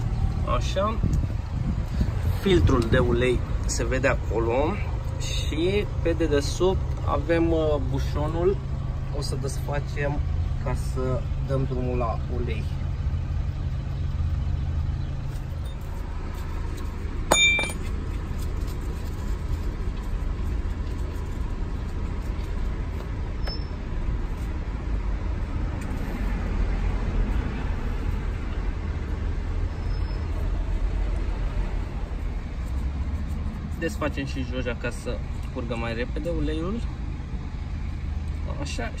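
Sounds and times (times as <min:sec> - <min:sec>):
steady low rumble: 0:00.0 - 0:29.6
sharp metallic clink: 0:17.3 - 0:18.0.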